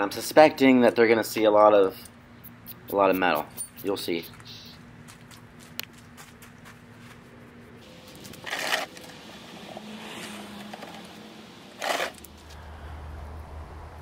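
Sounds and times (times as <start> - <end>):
gritty scrapes on gravel: 7.8 - 11.2, 11.8 - 12.5.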